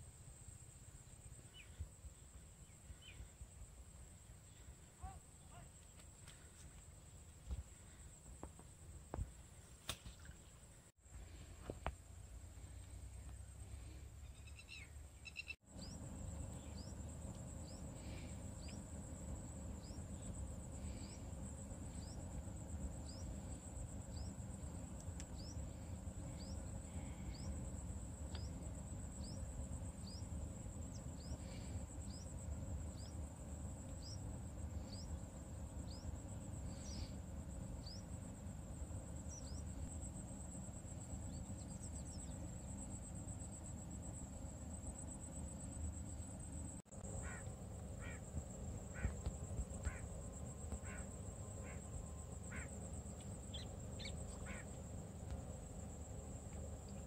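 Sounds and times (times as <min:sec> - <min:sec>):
insects trilling: 0:12.6 - 0:57.0.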